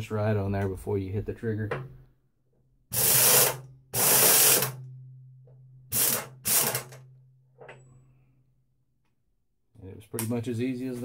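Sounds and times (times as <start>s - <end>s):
impact wrench hammering: 2.9s - 7.8s.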